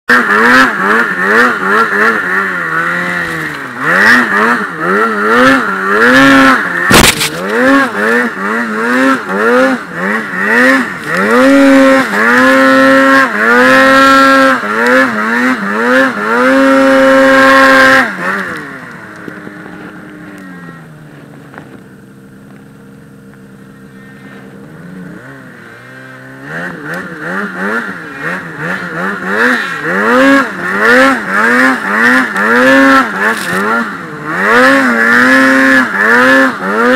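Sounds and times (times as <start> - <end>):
snowmobile engine revving: 0.1 - 36.9
sharp knock: 6.9 - 7.4.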